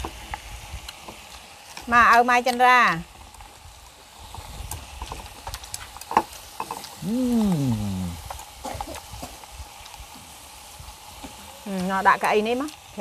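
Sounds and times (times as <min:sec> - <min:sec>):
food sizzling on grill pan: 0:00.0 - 0:13.0
person's drawn-out vocal sound: 0:07.0 - 0:08.2.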